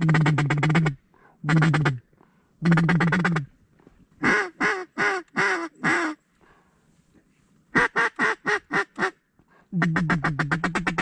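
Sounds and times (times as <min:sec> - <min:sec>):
duck call chatter: 0:00.0 - 0:02.0, 0:02.6 - 0:03.5, 0:04.2 - 0:06.2, 0:07.8 - 0:09.2, 0:09.8 - 0:11.0
duck call quacks: 0:00.0 - 0:02.0, 0:02.6 - 0:03.5, 0:04.2 - 0:06.2, 0:07.7 - 0:09.2, 0:09.8 - 0:11.0.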